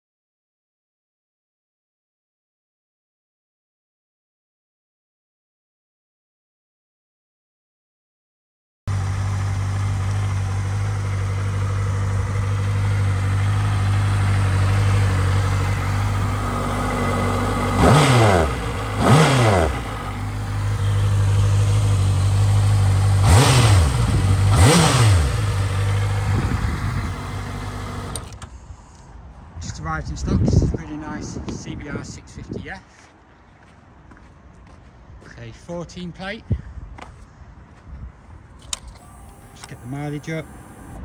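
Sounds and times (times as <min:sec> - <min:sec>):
motorcycle engine idling and revving: 0:08.9 - 0:28.6, 0:38.7 - 0:41.0.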